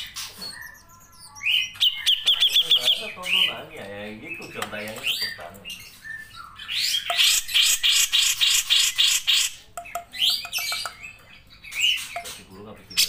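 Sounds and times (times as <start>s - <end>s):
bird calling harsh repeated notes: 4.3s - 13.0s.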